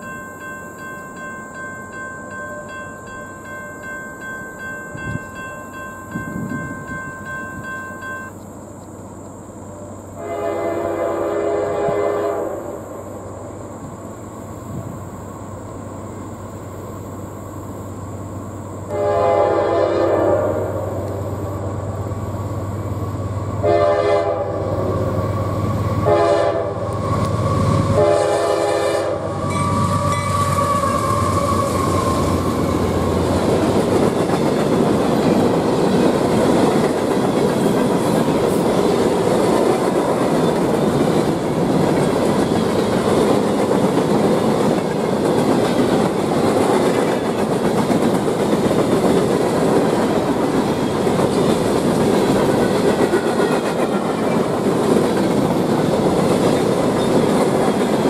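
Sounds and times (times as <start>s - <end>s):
locomotive horn blasts: 10.2s - 12.8s, 18.9s - 21.0s, 23.6s - 24.8s, 26.0s - 26.9s, 27.9s - 31.7s.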